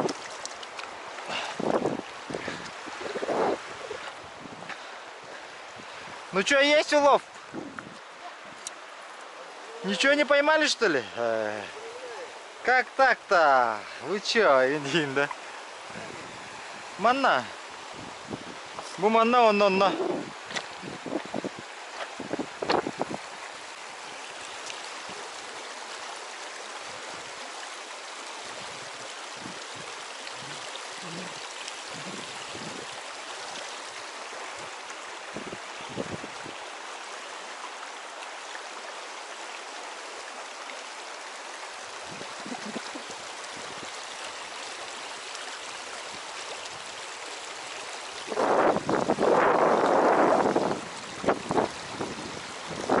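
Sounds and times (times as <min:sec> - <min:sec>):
river rushing over pebbles: 0:00.0 - 0:53.0.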